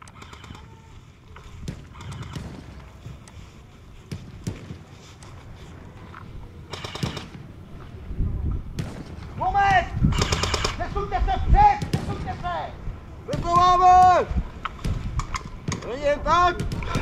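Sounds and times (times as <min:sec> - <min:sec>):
footsteps: 0:00.0 - 0:10.0.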